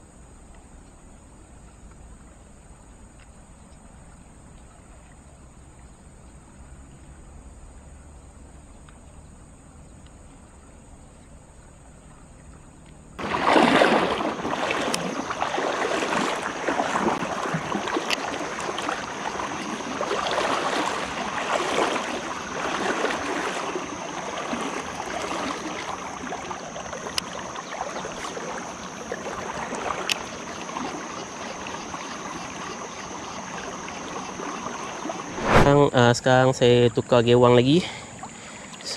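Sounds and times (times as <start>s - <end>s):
faint sharp ticks: 8.8s - 9.2s, 18.0s - 18.3s, 27.1s - 27.3s, 30.0s - 30.4s
river water rushing and lapping: 10.2s - 36.0s, 37.7s - 38.9s.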